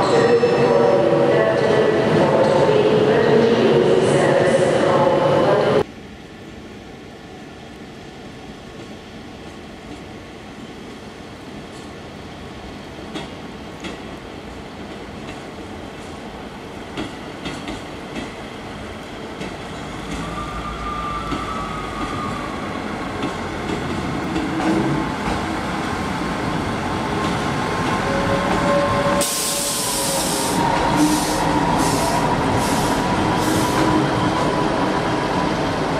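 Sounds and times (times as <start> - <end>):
train rumble: 14.8 - 35.9
loud hiss: 29.1 - 33.9.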